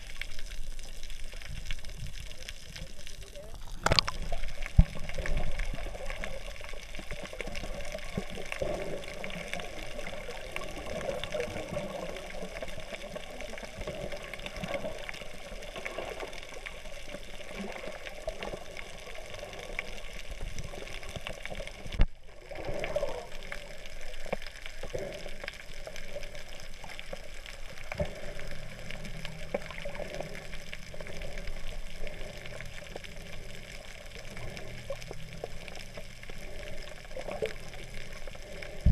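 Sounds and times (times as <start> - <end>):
underwater water rushing: 0.0 - 38.9.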